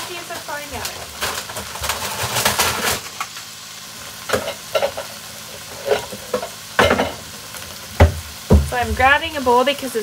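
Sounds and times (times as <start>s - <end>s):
vegetables sizzling in oil: 0.0s - 10.0s
dishes clinking and knocking: 5.8s - 7.2s.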